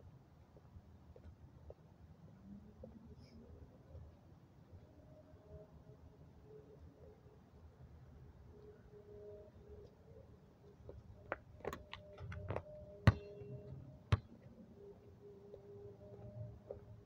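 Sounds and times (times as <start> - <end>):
basketball bouncing knocks: 13.0 - 13.4.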